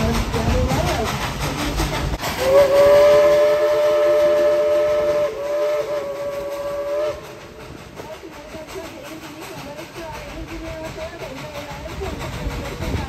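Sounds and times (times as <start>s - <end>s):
steam whistle blast: 2.3s - 7.4s.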